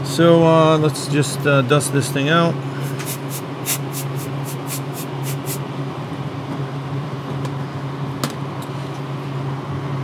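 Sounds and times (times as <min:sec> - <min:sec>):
steady low hum: 0:02.4 - 0:08.2
compressed air hissing blasts: 0:02.8 - 0:05.6.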